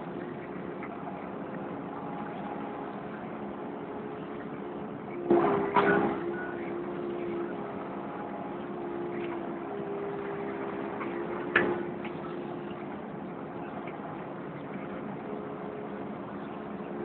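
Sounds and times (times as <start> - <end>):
excavator engine and hydraulics: 0.0 - 17.0.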